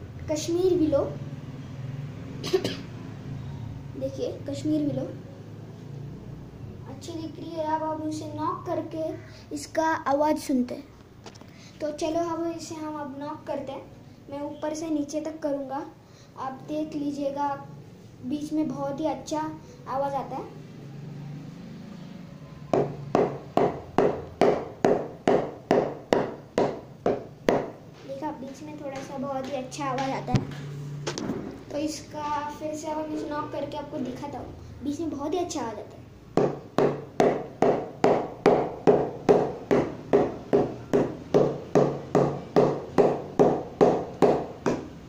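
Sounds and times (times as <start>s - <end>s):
cricket bat wooden knocks: 22.7s - 27.8s, 36.4s - 44.9s.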